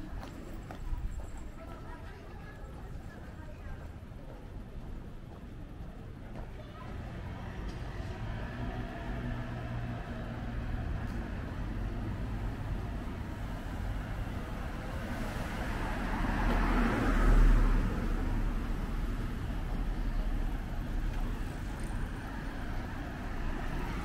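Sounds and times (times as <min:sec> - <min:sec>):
low traffic rumble: 0:00.0 - 0:24.0
car passing by: 0:07.0 - 0:24.0.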